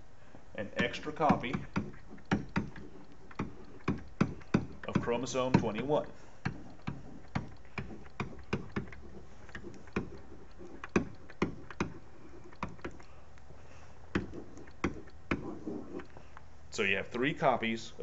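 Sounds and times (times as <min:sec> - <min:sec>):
faint steady hum: 0:00.0 - 0:18.0
stylus tapping on tablet: 0:00.8 - 0:13.0, 0:14.1 - 0:16.1.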